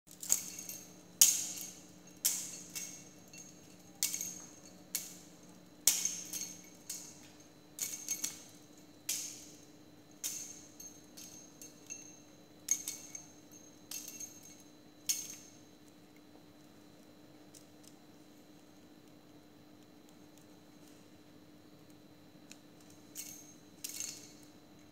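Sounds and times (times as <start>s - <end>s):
metallic clinking strikes: 0.1s - 15.6s.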